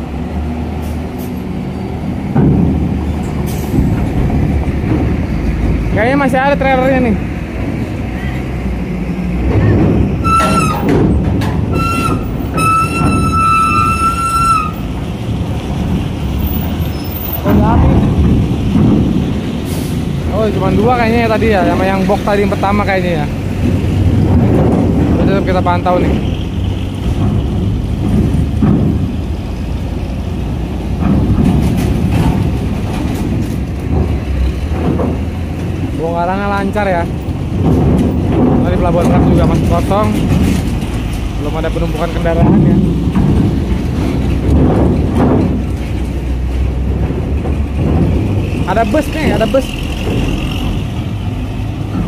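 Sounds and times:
diesel truck engine running: 0:00.0 - 0:52.0
clanks and rattles of metal grating: 0:00.7 - 0:52.0
shrill tone tooting: 0:10.2 - 0:10.9, 0:11.7 - 0:14.9.

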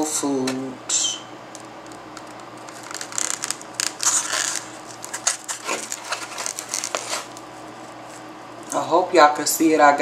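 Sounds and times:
paper and box crinkling: 0:01.9 - 0:08.3.

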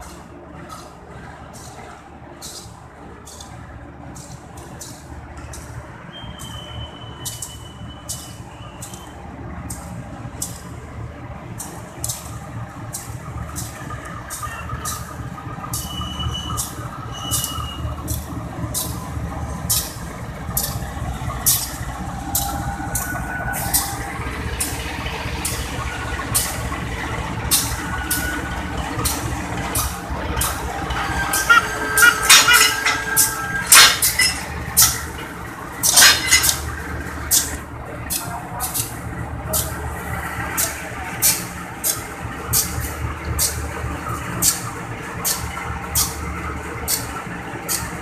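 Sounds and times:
diesel locomotive engine rumbling: 0:00.0 - 0:48.0
high squeals of wheels or brakes: 0:04.2 - 0:09.3, 0:13.6 - 0:19.1, 0:19.7 - 0:36.7.

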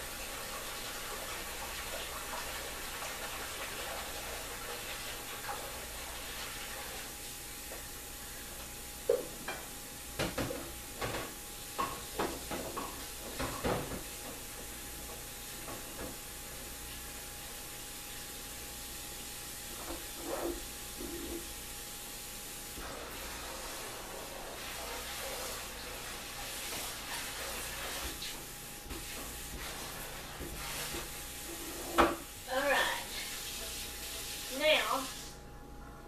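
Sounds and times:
water running in sink: 0:00.0 - 0:35.4
dishes clattering in sink: 0:09.0 - 0:14.5, 0:19.7 - 0:21.5, 0:26.6 - 0:32.3.

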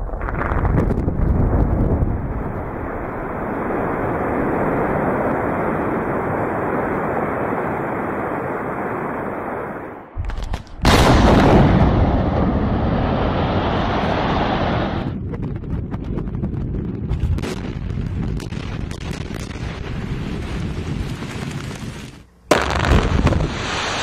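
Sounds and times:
loud explosion blast: 0:00.0 - 0:05.9, 0:10.2 - 0:21.0, 0:22.5 - 0:24.0
rock-blasting explosions rumbling: 0:00.0 - 0:09.0, 0:10.2 - 0:24.0.

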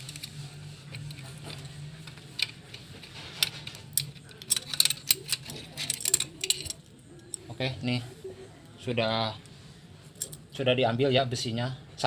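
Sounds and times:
steady low hum: 0:00.0 - 0:12.0
small steel parts clicking: 0:01.0 - 0:07.4, 0:10.2 - 0:10.4.

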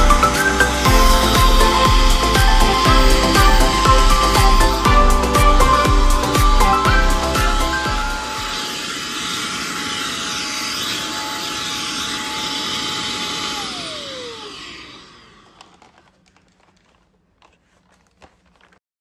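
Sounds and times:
vacuum cleaner whining: 0:00.0 - 0:18.8.

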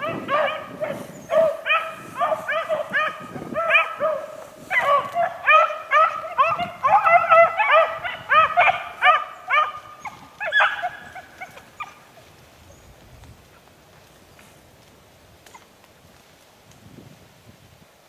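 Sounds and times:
hounds baying: 0:00.0 - 0:12.3.

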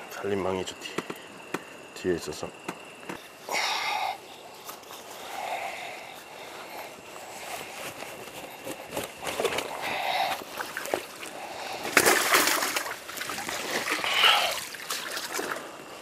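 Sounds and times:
water splashing and sloshing: 0:10.3 - 0:16.0.

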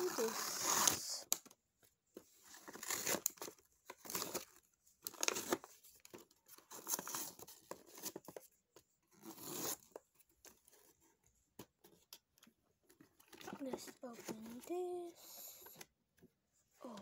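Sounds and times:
cardboard box tearing: 0:00.0 - 0:01.1, 0:02.6 - 0:05.6.

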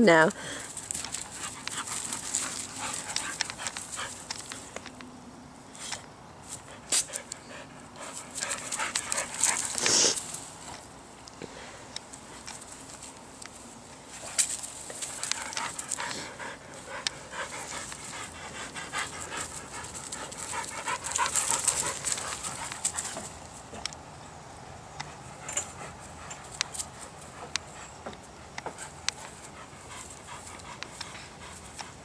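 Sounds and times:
dog panting: 0:00.6 - 0:04.6, 0:06.6 - 0:10.8, 0:14.2 - 0:23.4, 0:25.0 - 0:32.0.

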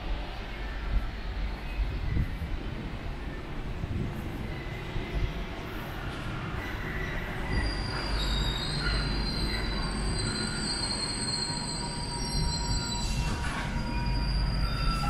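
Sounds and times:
train low rumble: 0:00.0 - 0:15.0
high steady squeal: 0:06.5 - 0:15.0.

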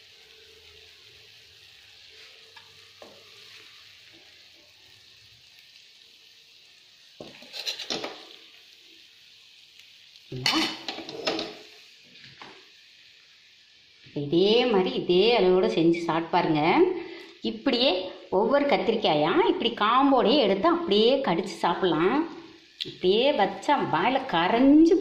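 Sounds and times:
faint steady hiss: 0:00.0 - 0:25.0
plate scraping and clattering: 0:07.4 - 0:08.2, 0:10.5 - 0:11.6.

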